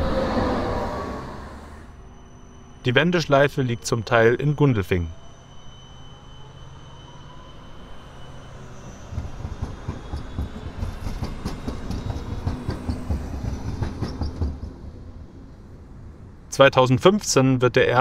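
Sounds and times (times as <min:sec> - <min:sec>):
rumble of wheels on rails: 0:00.0 - 0:18.0
tram high whine: 0:00.0 - 0:18.0
wheels clacking on rails: 0:08.9 - 0:15.3.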